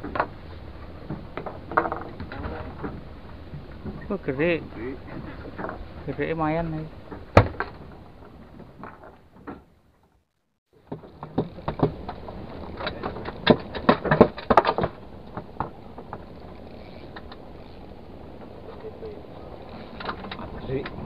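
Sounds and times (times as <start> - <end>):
wind and sea hiss: 0.0 - 7.2, 15.0 - 21.0
fishing reel clicking: 16.4 - 18.0.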